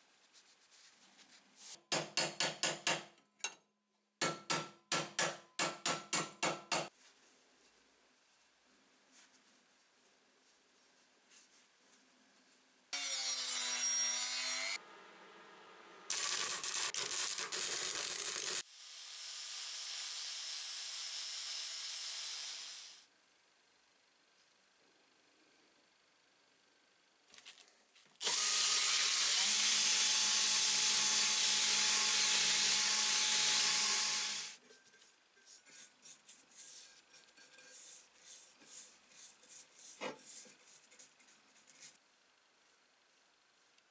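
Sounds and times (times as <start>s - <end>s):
hammer striking steel tube: 1.8s - 3.6s, 4.2s - 6.9s
welder crackling: 16.1s - 18.6s.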